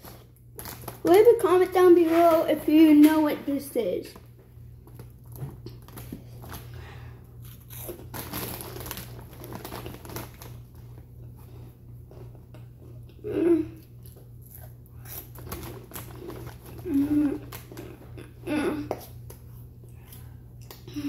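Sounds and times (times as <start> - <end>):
chip crunching and chewing: 0.0 - 1.0, 7.4 - 13.2, 13.8 - 21.0
chip bag crinkling: 0.0 - 1.9, 7.4 - 11.1, 15.0 - 18.3
person vocal sound: 18.4 - 18.9.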